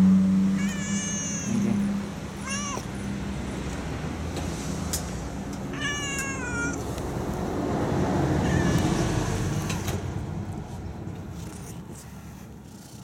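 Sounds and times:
cat meowing: 0.6s - 3.1s, 5.6s - 7.0s, 8.3s - 9.9s.

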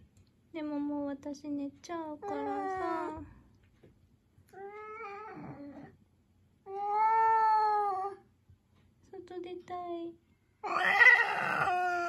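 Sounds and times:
cat meowing: 4.5s - 5.9s, 6.7s - 8.2s, 10.6s - 12.0s.

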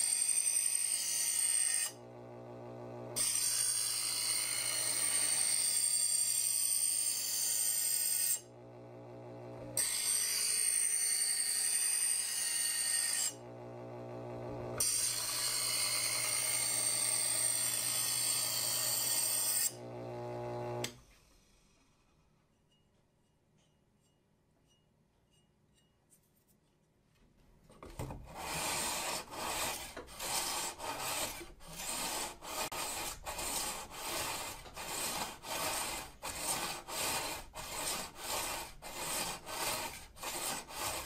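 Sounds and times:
knife sharpener motor humming: 0.9s - 6.1s, 8.2s - 21.0s.

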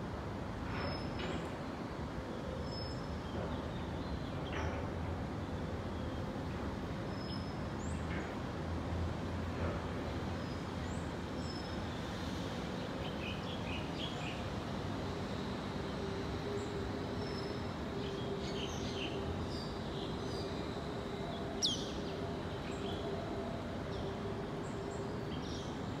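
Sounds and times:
distant city traffic hum: 0.0s - 26.0s.

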